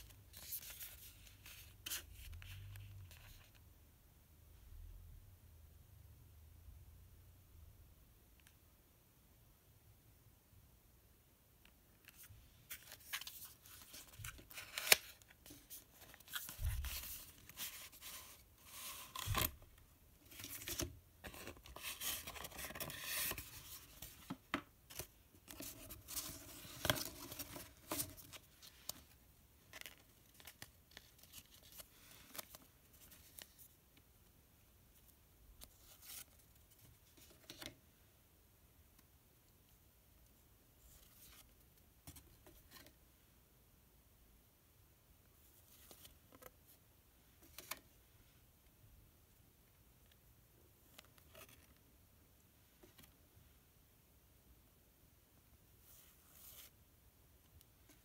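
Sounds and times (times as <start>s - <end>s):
paper rustling and sliding: 20.3s - 29.1s.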